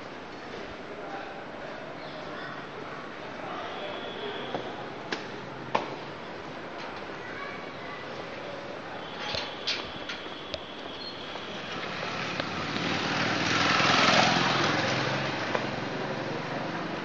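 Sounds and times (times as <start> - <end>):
vehicle engine passing by: 11.5 - 17.0.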